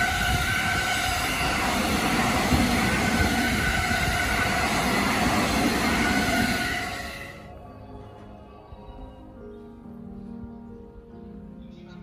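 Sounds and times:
train wheels rumbling on rail: 0:00.0 - 0:07.5
high whine of train: 0:00.0 - 0:11.4.

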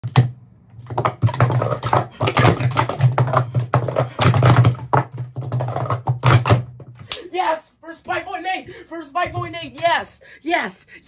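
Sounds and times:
plastic cups clattering: 0:00.0 - 0:07.2.

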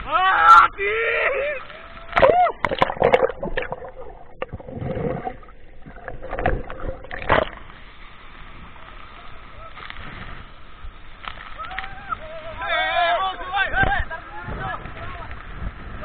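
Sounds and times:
muffled underwater rush of water: 0:01.0 - 0:16.0
water splashing and gurgling: 0:01.6 - 0:11.6
loud sudden splashes: 0:02.1 - 0:07.7.

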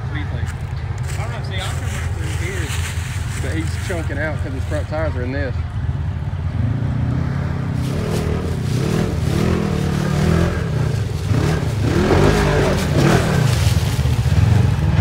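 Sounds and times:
off-road vehicle engine revving: 0:00.0 - 0:15.0.

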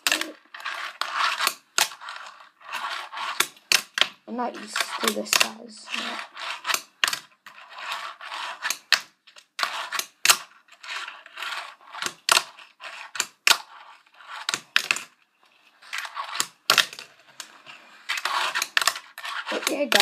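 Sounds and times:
small wheels rolling: 0:00.0 - 0:20.0.

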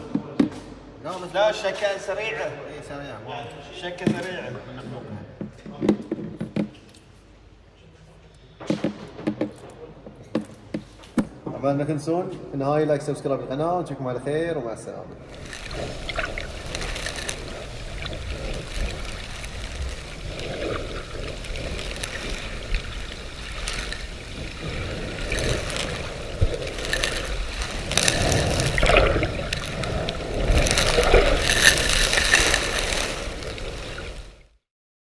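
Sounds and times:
water sloshing and splashing: 0:15.2 - 0:34.6.

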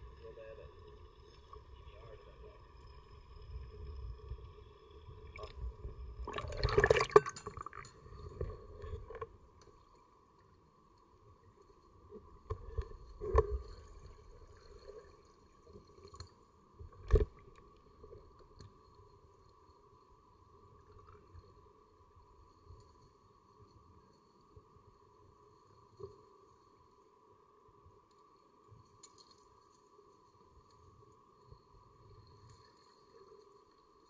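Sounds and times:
steady underwater hum: 0:00.0 - 0:34.0
underwater splashing and bubbling: 0:05.0 - 0:09.3.

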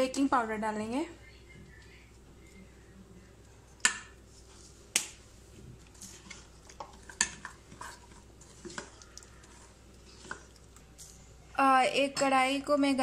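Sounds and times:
spoon stirring batter in metal bowl: 0:05.7 - 0:11.2.

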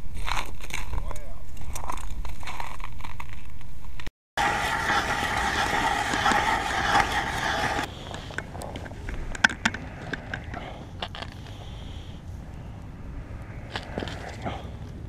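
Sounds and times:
hand ice auger grinding ice: 0:04.4 - 0:11.5.

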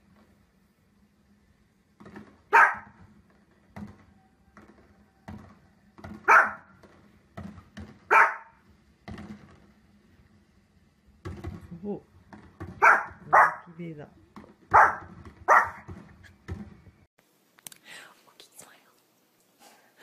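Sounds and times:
small dog barking: 0:02.5 - 0:03.0, 0:06.2 - 0:06.7, 0:08.1 - 0:08.6, 0:12.8 - 0:13.7, 0:14.7 - 0:15.9.

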